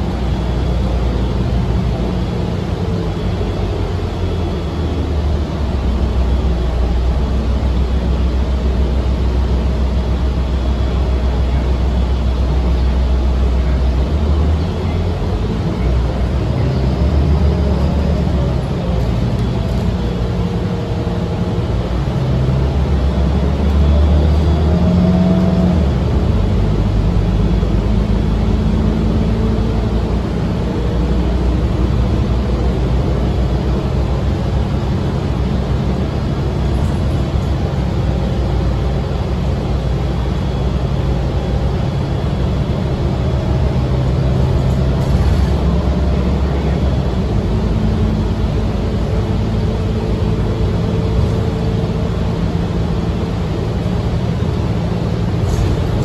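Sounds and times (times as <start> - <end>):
bus engine running: 0.0 - 56.0
tyre and road rumble: 31.0 - 56.0.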